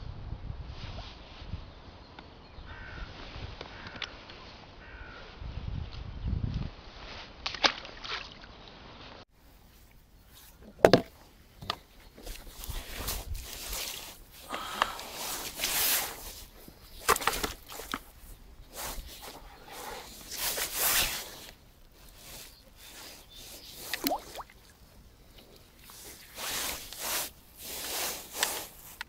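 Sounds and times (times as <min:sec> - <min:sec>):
fish rustling and scuffing: 0:12.1 - 0:29.0.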